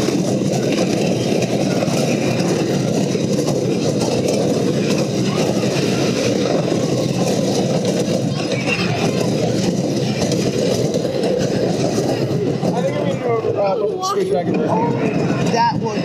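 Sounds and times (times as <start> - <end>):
roller coaster rumbling on wooden track: 0.0 - 16.0.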